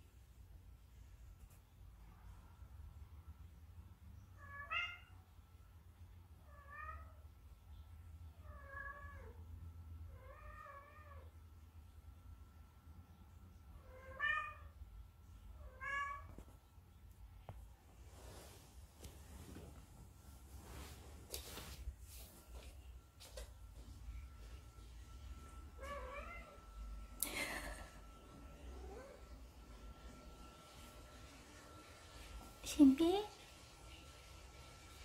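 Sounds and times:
faint high tone hum: 0.0 - 35.0
cat meowing: 4.4 - 5.2, 13.9 - 14.7, 15.6 - 16.3.

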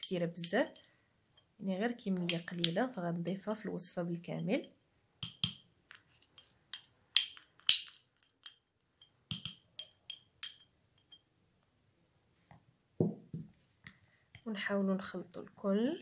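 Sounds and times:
spoon clinking against glass bowl: 5.2 - 5.6, 6.3 - 11.3
dull knock: 13.0 - 13.5.

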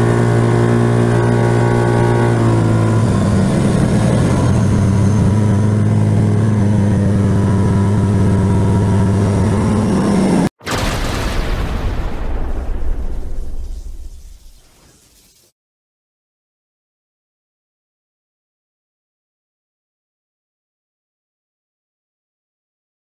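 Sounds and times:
road noise: 0.0 - 10.5
vehicle engine droning: 0.0 - 10.5.

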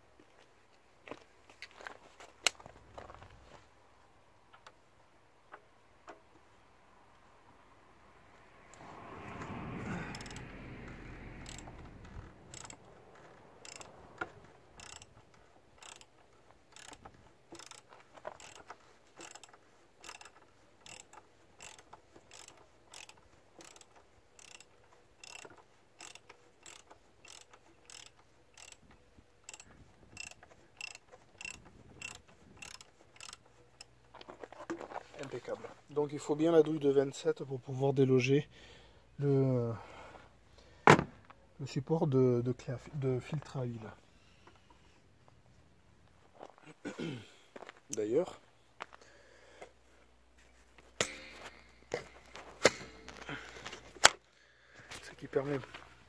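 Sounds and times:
socket ratchet clicking: 10.1 - 10.5, 11.4 - 28.8, 29.4 - 33.9
short rustle: 16.2 - 36.0.

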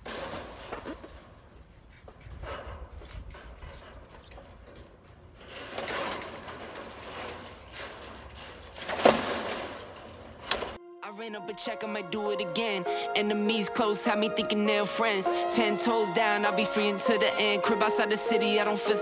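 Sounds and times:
sheet metal panels handled: 3.9 - 10.8.

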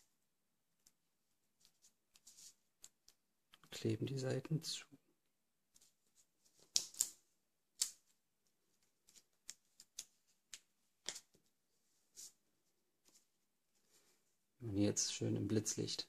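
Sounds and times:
paper ticks and crackles: 7.8 - 11.4.

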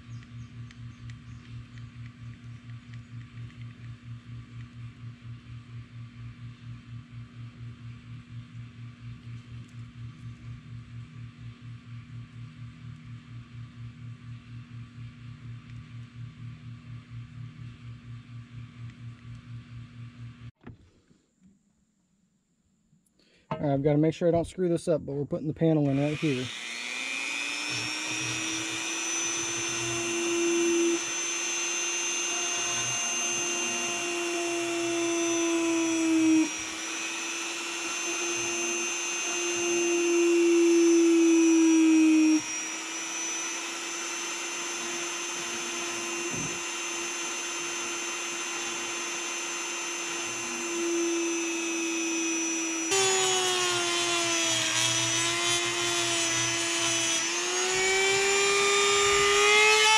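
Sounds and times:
rotary tool grinding plastic: 25.8 - 59.9.

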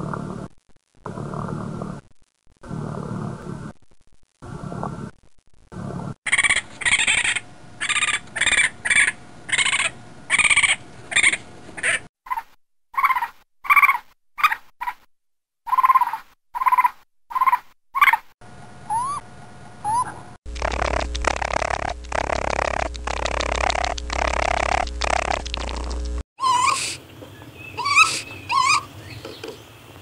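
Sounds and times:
raccoon calling: 6.3 - 12.4, 26.4 - 27.0, 27.6 - 29.5.

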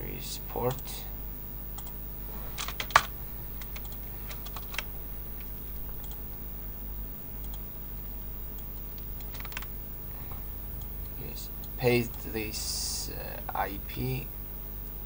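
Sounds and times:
steady low hum: 0.0 - 15.0
computer keyboard clicking: 1.8 - 2.0, 2.6 - 6.2, 7.4 - 7.6, 8.6 - 9.7.

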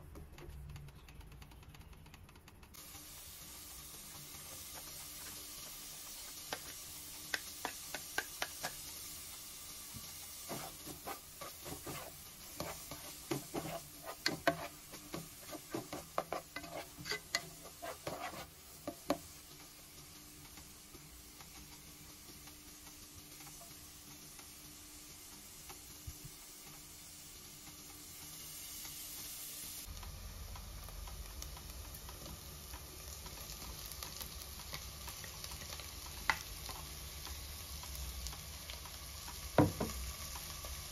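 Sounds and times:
onion sizzling in a pot: 2.7 - 40.9
spatula scraping a metal pot: 10.5 - 18.6.

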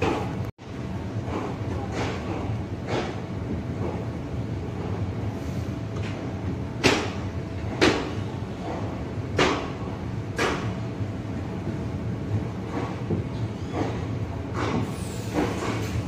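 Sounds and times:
train coach rumbling on track: 0.0 - 16.0.

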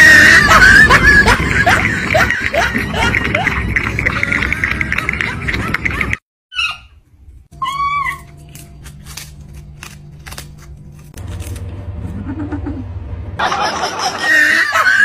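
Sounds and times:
kittens chewing dried fish: 8.5 - 11.7.

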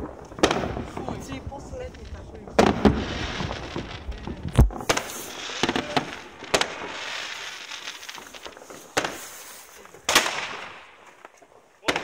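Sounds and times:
firework bangs: 0.0 - 12.0
firework crackling: 0.0 - 12.0.

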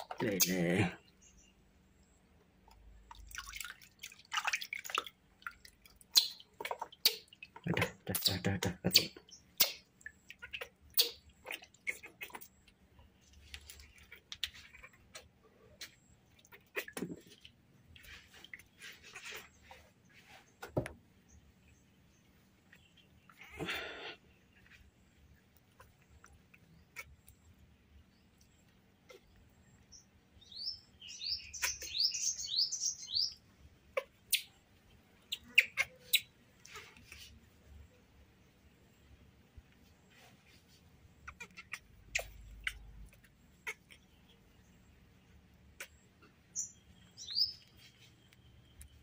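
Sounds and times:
water splashes and drips: 2.7 - 19.6
baby monkey squeaky chirps: 6.2 - 6.4, 8.9 - 9.8, 10.4 - 12.0, 35.3 - 36.3, 46.6 - 47.7.

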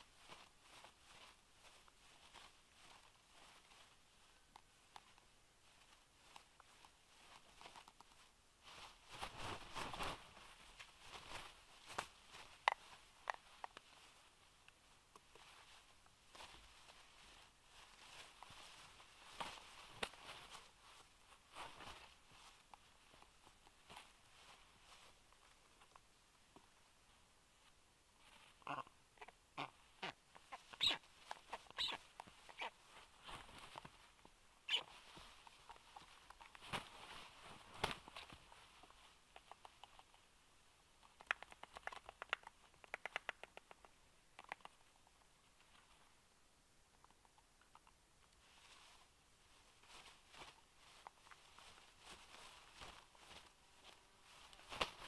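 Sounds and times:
wings flapping: 9.1 - 10.5, 36.5 - 38.4, 54.6 - 55.0
sharp clicks: 41.0 - 44.8.

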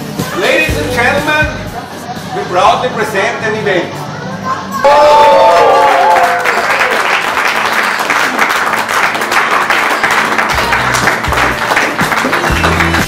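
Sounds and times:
music playing: 0.0 - 6.2, 7.2 - 13.0
audience applauding: 5.2 - 13.0.

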